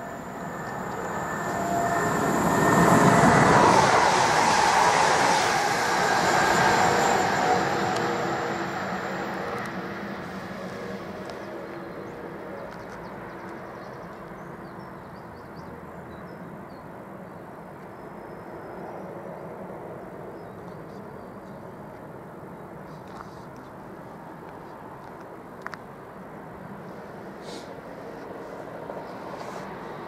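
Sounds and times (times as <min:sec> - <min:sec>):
electric train running away: 0:00.0 - 0:11.8.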